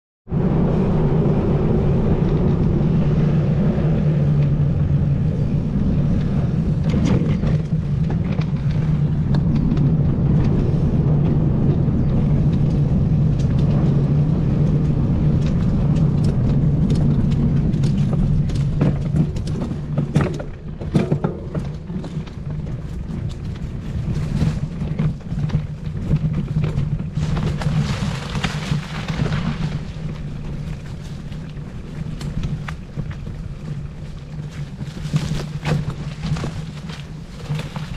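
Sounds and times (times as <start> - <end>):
engine droning: 0.3 - 37.9.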